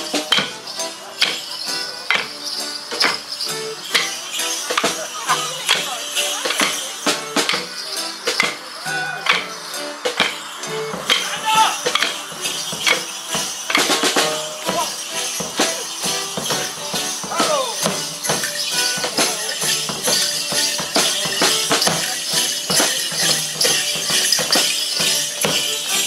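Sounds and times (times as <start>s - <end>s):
folk band playing drums: 0.0s - 26.0s
leg bells jingling: 0.0s - 26.0s
sticks clacking: 0.0s - 26.0s
person whooping: 8.8s - 9.3s, 17.3s - 17.8s.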